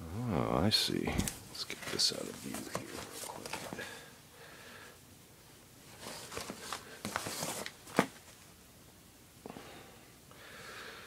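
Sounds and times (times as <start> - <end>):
faint handling rustles: 1.1 - 4.0, 5.8 - 8.6.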